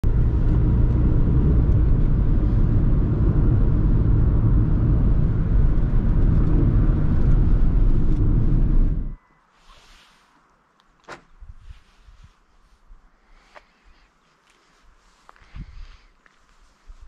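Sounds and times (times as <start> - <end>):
diesel van engine rumbling: 0.0 - 9.2.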